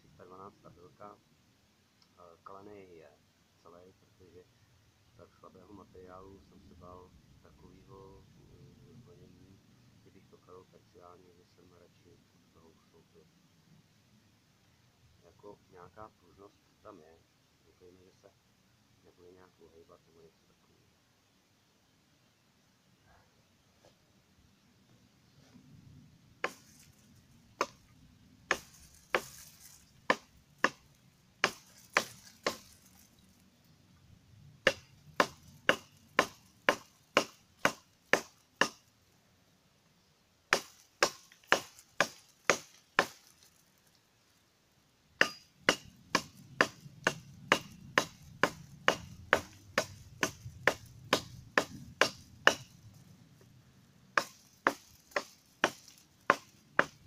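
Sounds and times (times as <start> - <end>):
cleaver chopping dry branch: 26.4 - 27.0, 27.6 - 27.9, 28.5 - 33.2, 34.6 - 38.8, 40.5 - 43.6, 45.2 - 52.8, 54.1 - 57.0.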